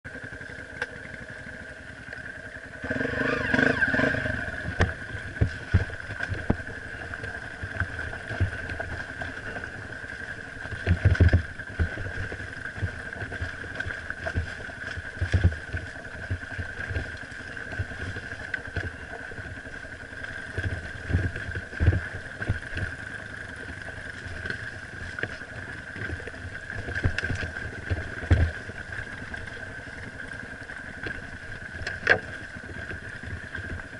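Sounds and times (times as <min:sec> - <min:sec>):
dirt bike engine revving: 0:02.7 - 0:14.4.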